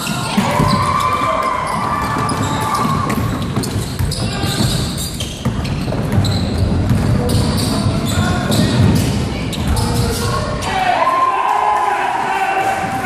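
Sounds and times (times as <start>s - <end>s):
players running: 0.0s - 9.0s
basketball bouncing on hardwood: 1.7s - 9.8s.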